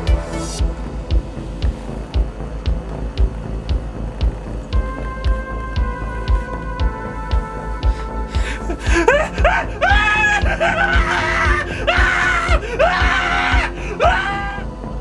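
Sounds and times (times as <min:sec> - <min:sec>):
synth horror score pulsing beat: 0:00.0 - 0:15.0
wailing cry: 0:09.0 - 0:14.7.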